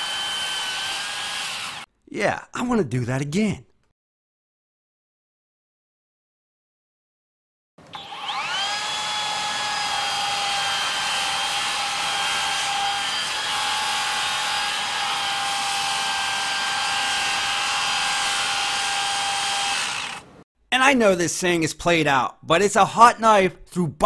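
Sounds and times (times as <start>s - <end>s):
circular saw cutting timber: 0.0s - 1.9s, 7.9s - 20.4s.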